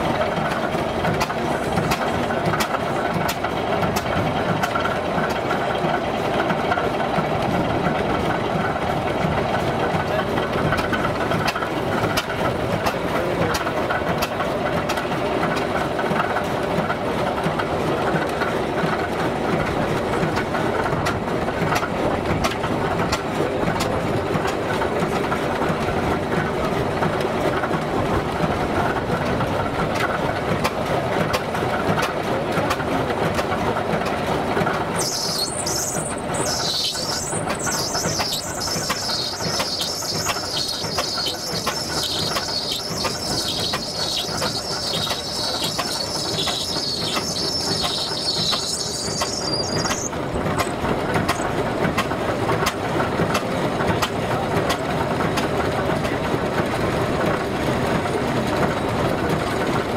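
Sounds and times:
steam engine clattering: 0:00.0 - 0:59.9
high wavering sound: 0:35.0 - 0:50.2.

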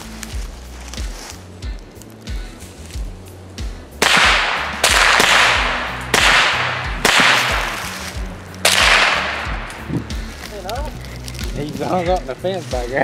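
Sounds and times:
background music with bass line: 0:00.0 - 0:13.0
sharp loud cracks: 0:04.0 - 0:09.9.

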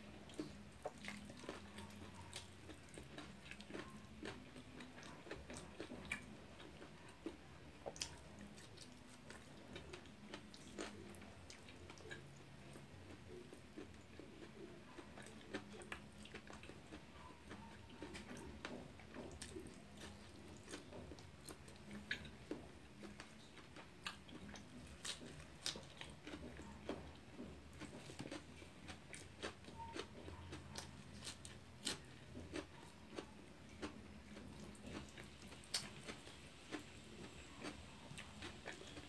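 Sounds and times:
person chewing food: 0:00.0 - 0:39.0.

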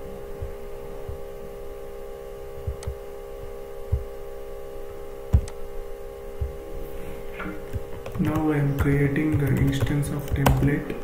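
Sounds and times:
electrical hum: 0:00.0 - 0:11.0
dull low thumps: 0:02.6 - 0:04.1, 0:06.4 - 0:06.6.

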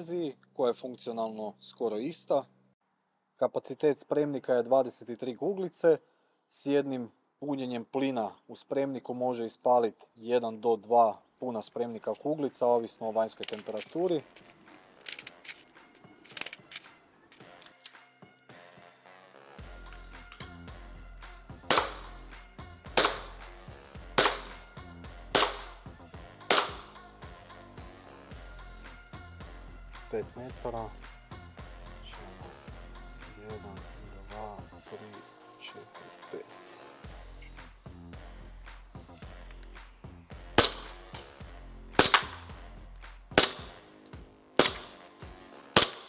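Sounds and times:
background music: 0:10.4 - 0:46.0
airsoft pistol shots: 0:21.6 - 0:22.1, 0:23.0 - 0:23.4, 0:24.2 - 0:24.6, 0:25.3 - 0:25.8, 0:26.5 - 0:26.9, 0:40.6 - 0:41.3, 0:42.0 - 0:42.5, 0:43.4 - 0:43.8, 0:44.6 - 0:45.0, 0:45.8 - 0:46.0.

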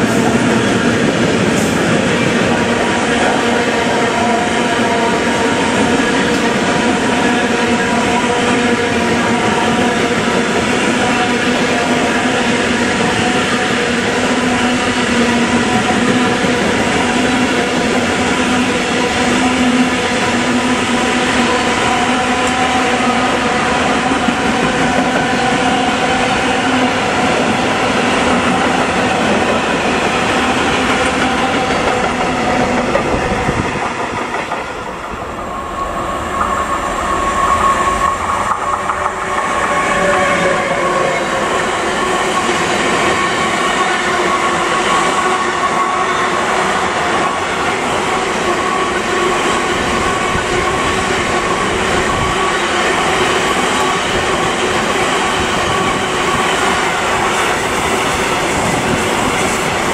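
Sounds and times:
train running past: 0:00.0 - 0:59.9
steady high tone: 0:34.6 - 0:59.9.

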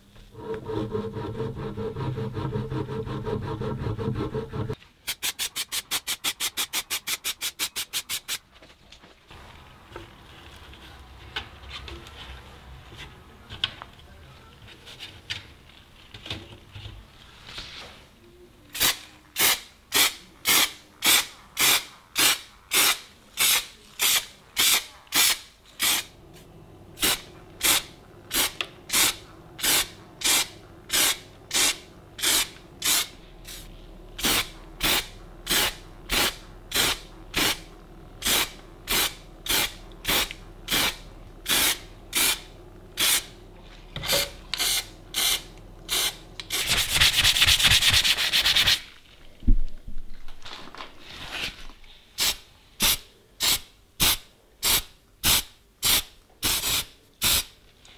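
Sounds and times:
hand file rubbing on metal: 0:00.3 - 0:04.8
aerosol spray can bursts: 0:05.1 - 0:08.4, 0:18.8 - 0:26.1, 0:27.0 - 0:43.3, 0:44.1 - 0:48.8, 0:52.2 - 0:57.5.

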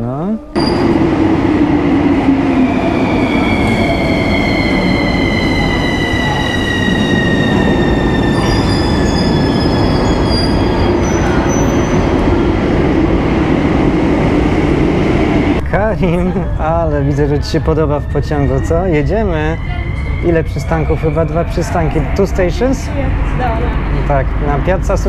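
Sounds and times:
high wheel squeals: 0:00.6 - 0:01.2, 0:02.6 - 0:12.1, 0:16.8 - 0:22.7
train whine falling in pitch: 0:00.6 - 0:12.3
train wheels rumbling on rails: 0:00.6 - 0:25.0.

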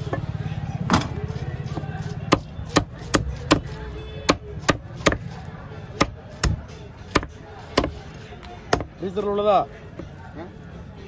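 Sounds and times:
cleaver chopping on wooden block: 0:00.9 - 0:05.4, 0:06.0 - 0:08.0.

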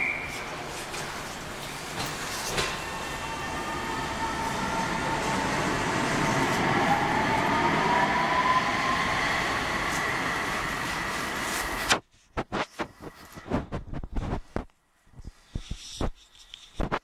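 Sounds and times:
train rumble and wheel noise: 0:00.0 - 0:12.0.

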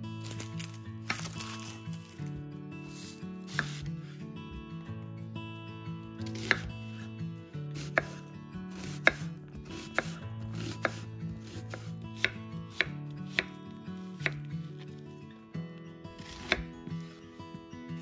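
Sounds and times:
knife slicing onion on board: 0:00.2 - 0:04.7, 0:06.2 - 0:07.1, 0:07.7 - 0:15.0, 0:16.1 - 0:17.2
blade knocking on cutting board: 0:06.3 - 0:06.7, 0:08.8 - 0:10.2.

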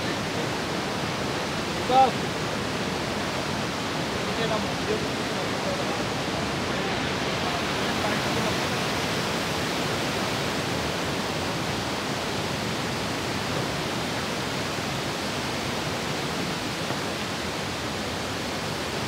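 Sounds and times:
river rushing over rocks: 0:00.0 - 0:19.0.

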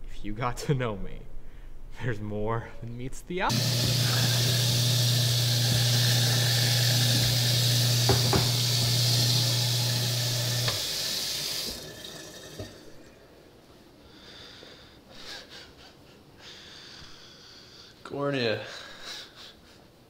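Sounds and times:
tap running into sink: 0:05.7 - 0:12.8.

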